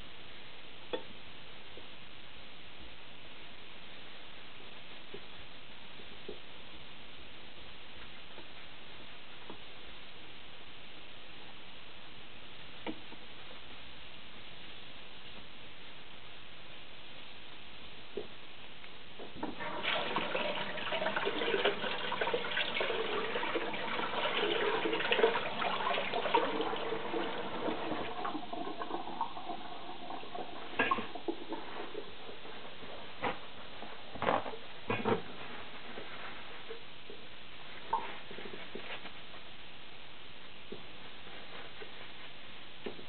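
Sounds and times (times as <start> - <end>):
water running from a tap: 19.6 - 31.6.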